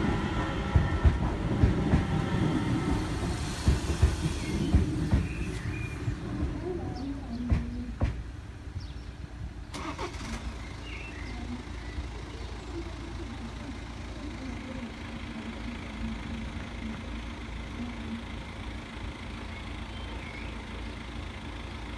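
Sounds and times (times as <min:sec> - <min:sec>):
car engines idling: 0:00.0 - 0:21.9.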